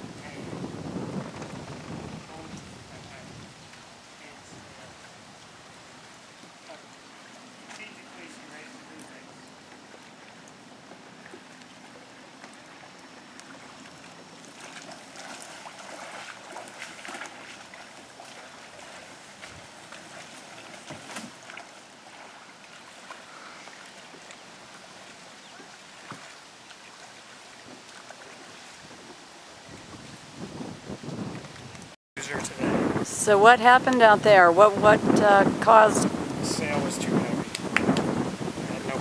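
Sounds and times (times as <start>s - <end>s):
wind on microphone: 0.0s - 6.1s, 28.6s - 39.0s
water splashing and lapping: 0.0s - 39.0s.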